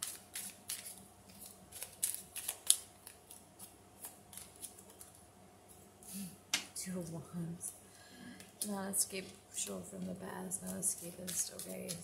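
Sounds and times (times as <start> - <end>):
cards being shuffled: 0.0 - 5.2, 10.6 - 12.0.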